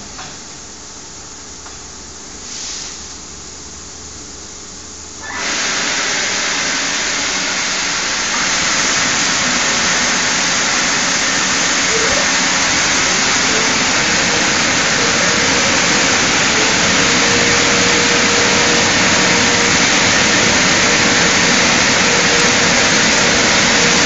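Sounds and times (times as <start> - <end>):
air dryer blowers rushing: 5.2 - 24.0.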